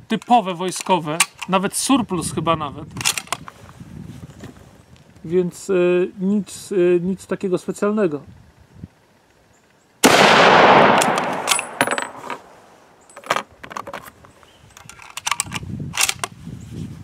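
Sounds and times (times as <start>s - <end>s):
rifle bolt clicks: 0.2s - 1.6s, 3.0s - 3.4s, 10.0s - 12.5s, 14.8s - 16.3s
rifle shot echoing: 10.0s - 12.7s
spent case ringing: 11.0s - 14.1s.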